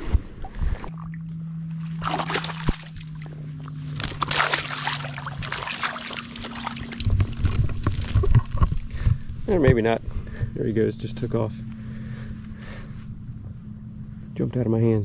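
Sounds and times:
steady low hum: 0:00.0 - 0:15.0
water sloshing and splashing: 0:00.4 - 0:09.0.

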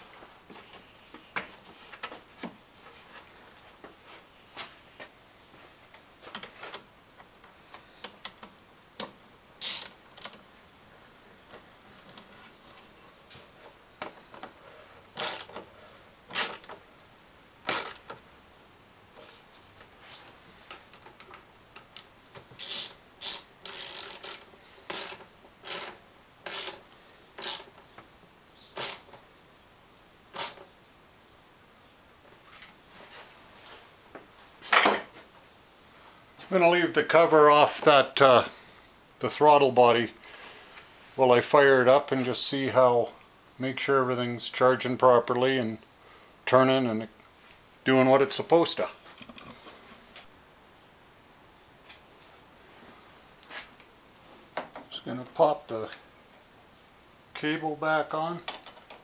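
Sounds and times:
ratchet wrench clicking: 0:09.6 - 0:10.4, 0:15.2 - 0:15.5, 0:16.3 - 0:16.7, 0:17.7 - 0:18.1, 0:22.6 - 0:26.8, 0:27.4 - 0:27.7, 0:28.8 - 0:29.1, 0:30.4 - 0:30.6.

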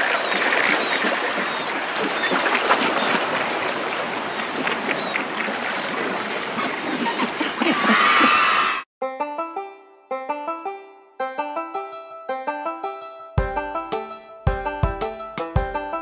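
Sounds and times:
stream flowing: 0:00.0 - 0:07.8.

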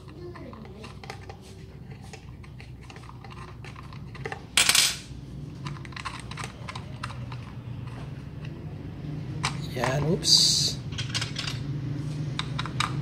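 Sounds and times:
metal clicks and clinks: 0:05.6 - 0:08.0, 0:10.9 - 0:11.6.

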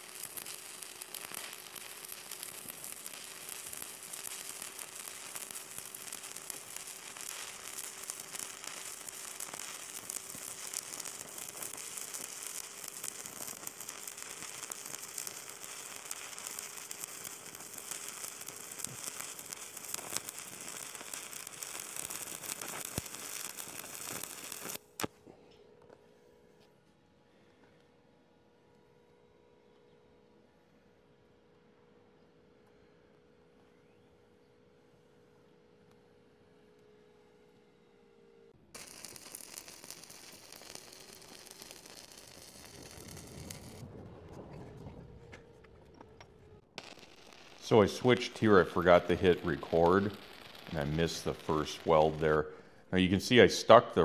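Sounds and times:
welding arc crackling: 0:00.0 - 0:25.1, 0:38.7 - 0:44.0, 0:44.8 - 0:54.0.

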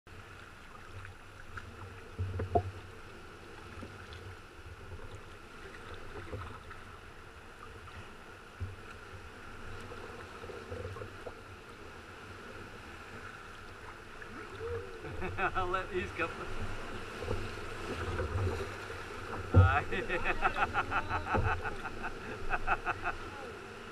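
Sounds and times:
water lapping against kayak hull: 0:00.1 - 0:23.9
swell washing over rocks: 0:14.6 - 0:23.9.

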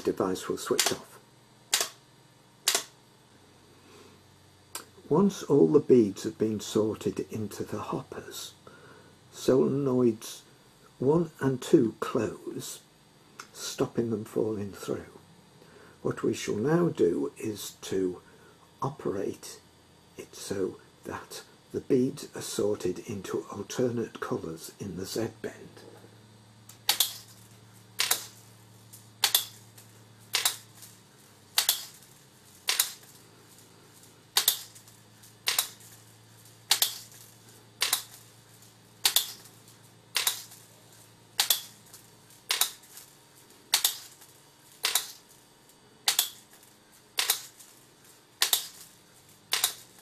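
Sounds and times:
faint low hum: 0:00.0 - 0:50.0
solenoid gates clicking: 0:26.8 - 0:27.3, 0:28.0 - 0:28.4, 0:29.2 - 0:29.7, 0:30.3 - 0:30.8, 0:31.6 - 0:32.0, 0:32.6 - 0:33.1, 0:34.4 - 0:35.9, 0:36.6 - 0:37.2, 0:37.8 - 0:38.3, 0:39.0 - 0:39.5, 0:40.1 - 0:40.7, 0:41.4 - 0:41.8, 0:42.5 - 0:43.0, 0:43.7 - 0:44.2, 0:44.8 - 0:45.2, 0:46.0 - 0:46.4, 0:48.4 - 0:48.8, 0:49.5 - 0:49.9.

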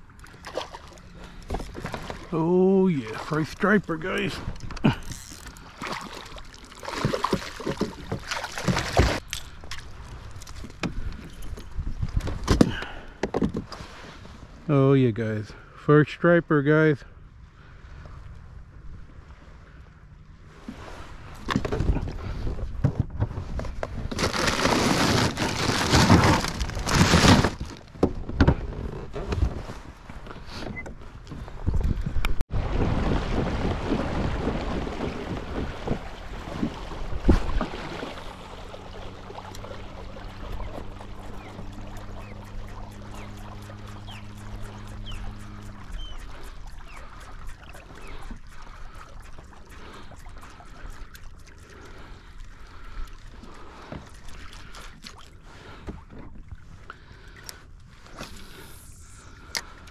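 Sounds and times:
water splashing against kayak hull: 0:00.0 - 0:14.6, 0:20.5 - 0:59.9
ice and plastic bag rattling: 0:24.1 - 0:27.9.

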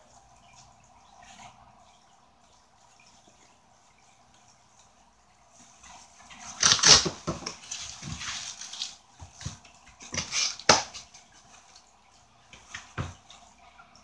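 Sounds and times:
cardboard scraping and rustling: 0:06.4 - 0:11.0.

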